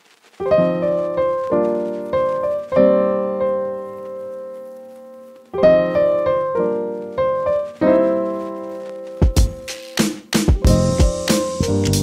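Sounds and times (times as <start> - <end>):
piano chords: 0.4 - 12.0.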